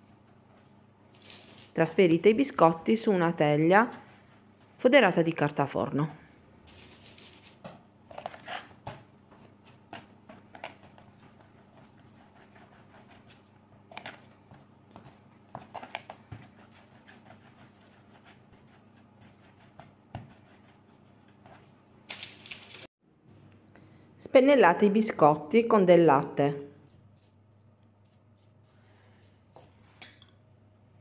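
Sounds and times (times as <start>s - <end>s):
dough rustling: 6.7s - 22.9s
faint steady hum: 23.1s - 24.7s.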